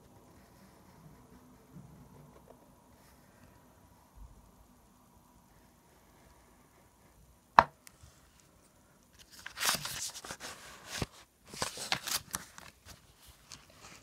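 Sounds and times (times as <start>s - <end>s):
paper and pen rustling: 9.1s - 14.0s.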